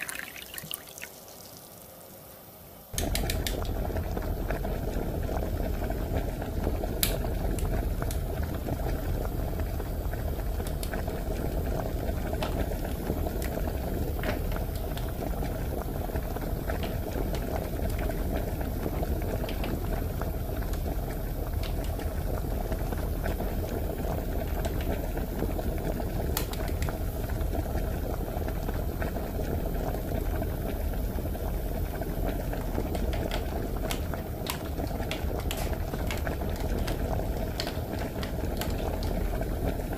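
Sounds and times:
toy bubbling noise: 0.0s - 1.9s.

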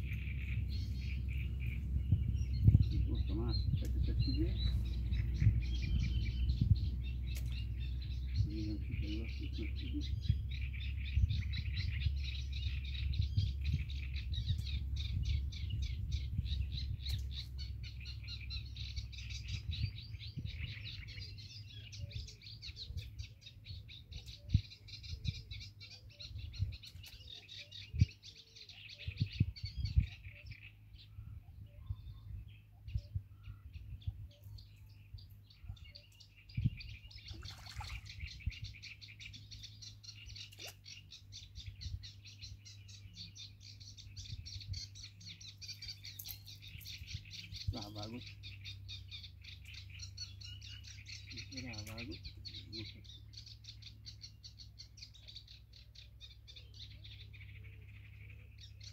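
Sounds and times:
low thumps: 0.0s - 7.8s
songbirds chirping chorus: 0.0s - 58.9s
wind rumbling on microphone: 0.0s - 58.9s.

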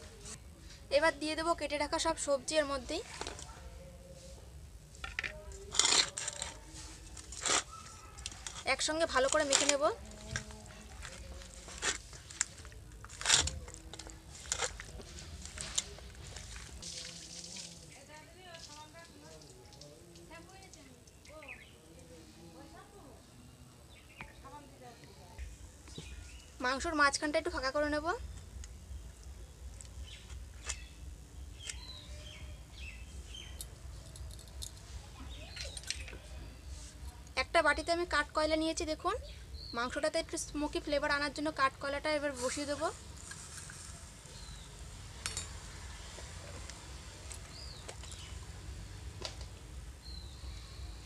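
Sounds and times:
small birds chirping: 28.2s - 34.1s, 47.4s - 48.5s.

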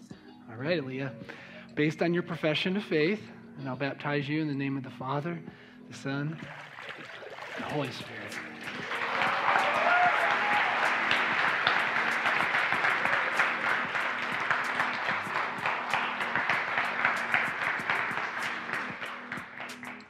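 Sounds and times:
congregation applauding: 6.5s - 20.0s.

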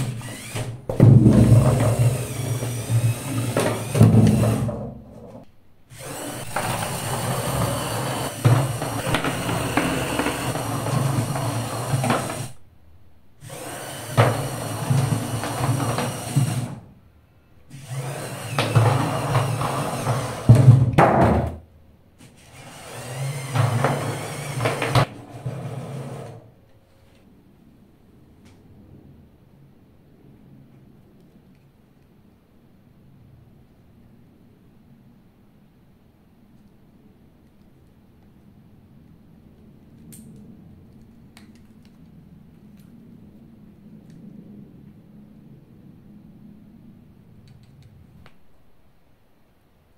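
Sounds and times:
small electric motors whirring: 0.0s - 0.8s, 1.5s - 4.7s, 5.9s - 12.6s, 13.4s - 16.8s, 17.7s - 20.6s, 22.2s - 26.3s.

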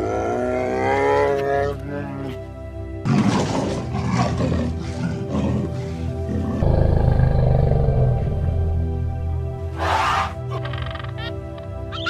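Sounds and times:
background music: 0.0s - 12.0s
leopard roaring: 3.0s - 9.1s.

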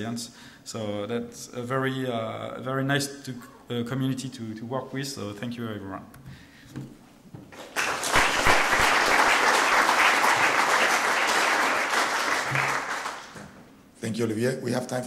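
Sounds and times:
audience applauding: 7.6s - 13.6s.

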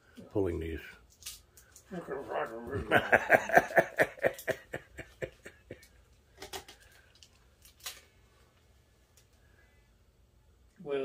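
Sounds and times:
rustling clicks of packing pieces: 5.8s - 8.1s.

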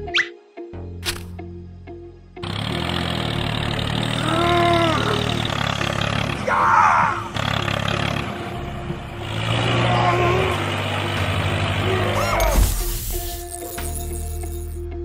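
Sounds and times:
tractor engine running: 2.4s - 13.2s.

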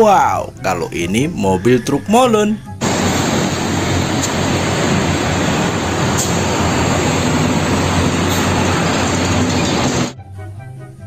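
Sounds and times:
trucks and scooters driving past: 2.8s - 10.2s.

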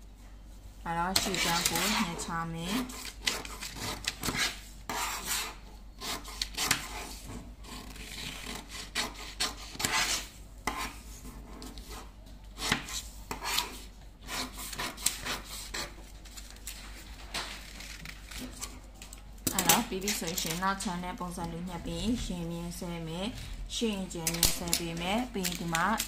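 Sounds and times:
scissors cutting paper: 1.1s - 20.8s, 24.2s - 26.0s
paper rustling on a table: 14.7s - 20.6s.

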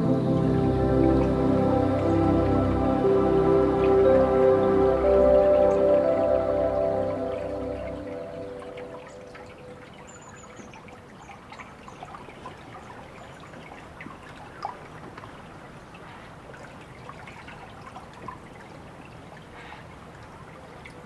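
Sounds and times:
high chirp: 0.0s - 10.5s
trickling water drips: 0.0s - 21.0s.

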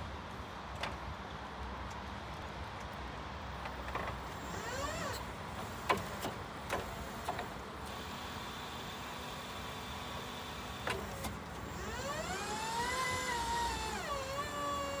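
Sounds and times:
electric forklift motor whining: 4.4s - 5.8s, 7.9s - 15.0s.

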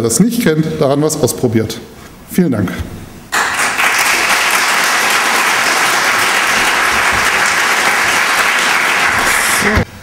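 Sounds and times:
audience applauding: 3.3s - 9.8s.

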